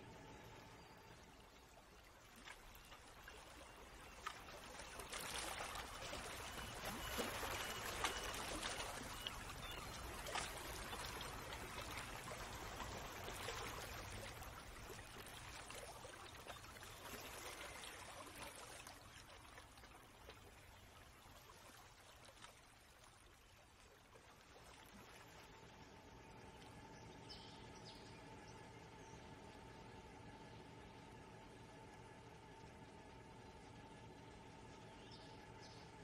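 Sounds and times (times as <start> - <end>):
faint trickling water: 0.0 - 36.0.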